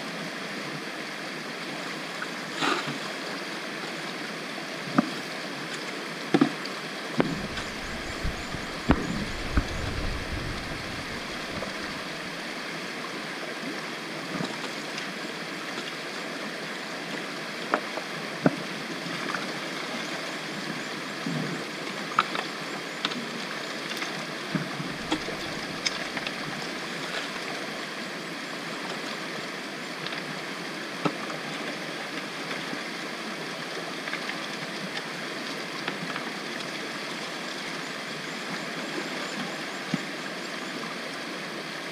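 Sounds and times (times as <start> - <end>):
creek water running over rocks: 0.0 - 41.9
bucket and gravel knocks: 7.2 - 12.0.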